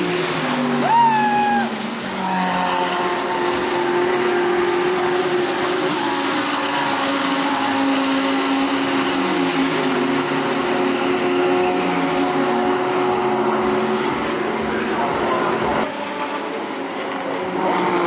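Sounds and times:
race car engines running: 0:00.0 - 0:18.0.

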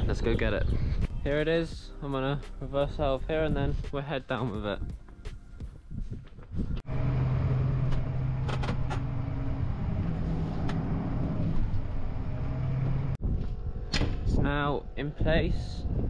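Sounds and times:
tractor engine drone: 0:06.8 - 0:13.8.

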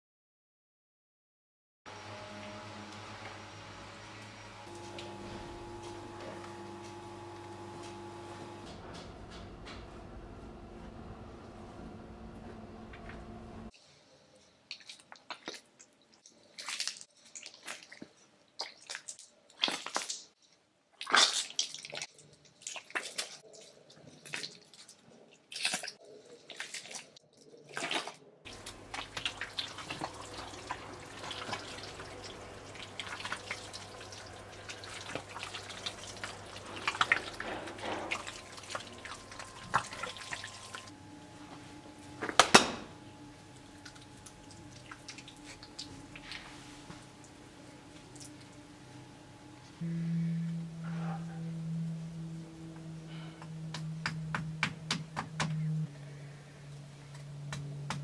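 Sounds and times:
low hum: 0:01.9 - 0:13.7, 0:28.5 - 0:58.0
water splash: 0:27.7 - 0:40.9
fine crackling and trickling: 0:28.5 - 0:41.0
water dripping: 0:28.5 - 0:41.0, 0:43.4 - 0:48.9.

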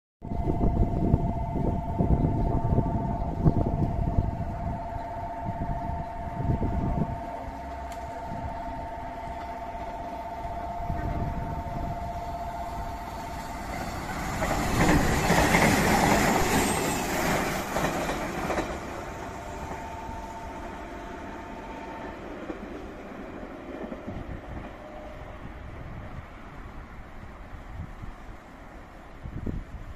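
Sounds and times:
electric train passing: 0:00.3 - 0:29.9.

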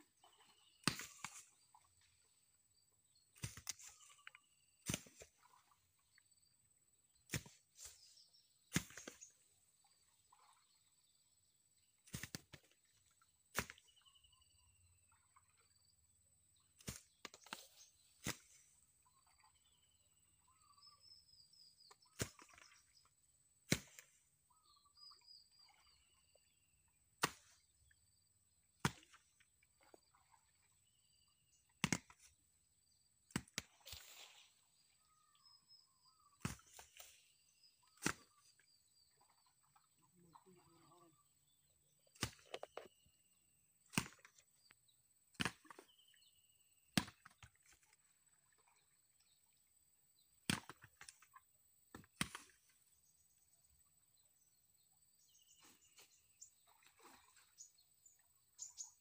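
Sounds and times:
bird chirps: 0:00.0 - 0:12.2, 0:12.9 - 0:16.0, 0:16.6 - 0:23.2, 0:24.0 - 0:28.3, 0:33.8 - 0:45.0, 0:45.6 - 0:47.7, 0:52.4 - 0:59.0.

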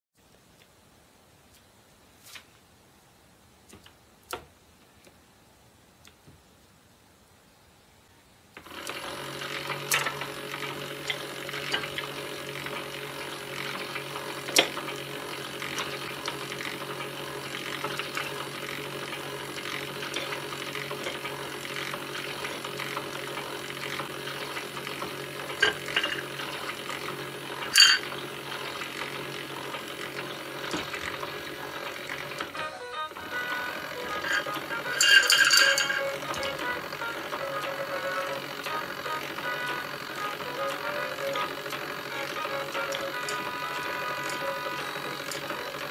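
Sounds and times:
toy electronic sound effect: 0:32.6 - 0:45.8.

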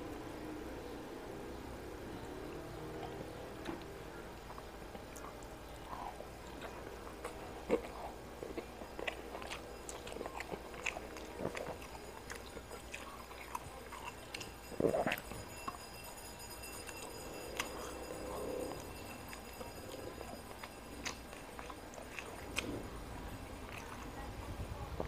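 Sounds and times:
fingers clicking gathering food: 0:02.2 - 0:15.8
chewing and mouth smacks: 0:02.5 - 0:15.8, 0:16.8 - 0:25.0.

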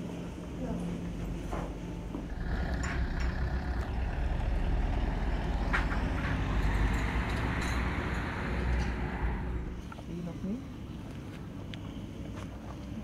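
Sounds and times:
van driving past: 0:02.3 - 0:09.8.

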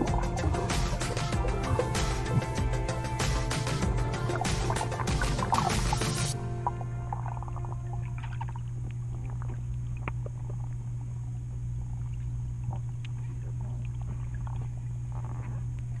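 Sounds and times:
underwater low hum: 0:00.0 - 0:16.0
small clicks and crackles: 0:08.4 - 0:16.0.

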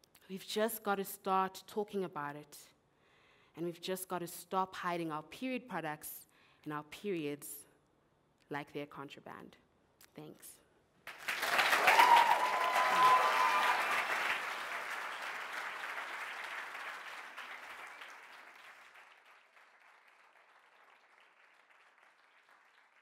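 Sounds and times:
audience applauding: 0:11.1 - 0:23.0.

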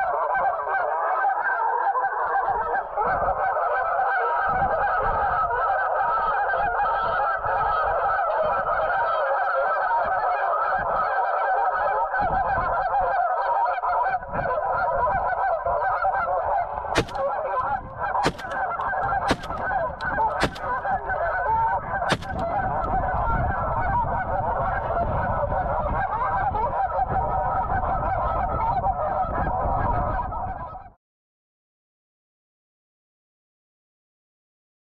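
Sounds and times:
shotgun shots: 0:17.0 - 0:21.3, 0:22.1 - 0:22.9.

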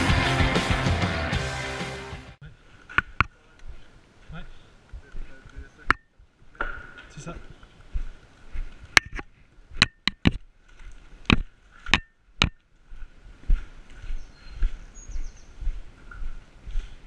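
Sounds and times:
footsteps on concrete floor: 0:10.2 - 0:17.0.

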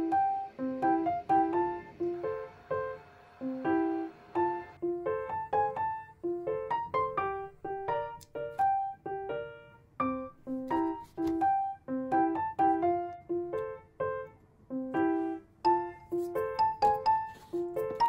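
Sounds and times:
light piano melody: 0:00.0 - 0:18.0.

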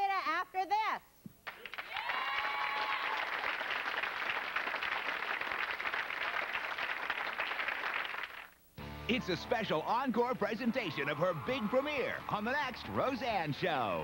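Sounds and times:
audience applauding: 0:01.4 - 0:08.6
person cheering: 0:01.9 - 0:03.3.

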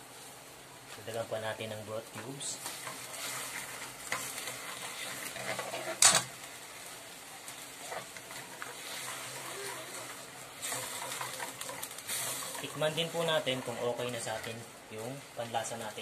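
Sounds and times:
faint sizzle: 0:00.0 - 0:16.0
metal ladle stirring in wok: 0:02.6 - 0:06.2, 0:07.7 - 0:14.5.

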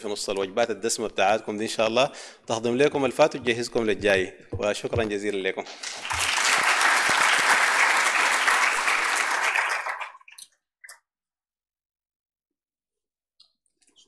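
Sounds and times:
audience applauding: 0:05.8 - 0:10.3.

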